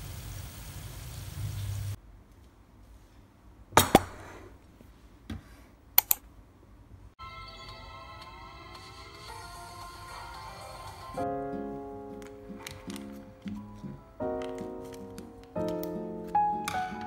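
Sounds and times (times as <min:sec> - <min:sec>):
oil sizzling in a frying pan: 0:00.0 - 0:02.0
background piano music: 0:07.2 - 0:17.0.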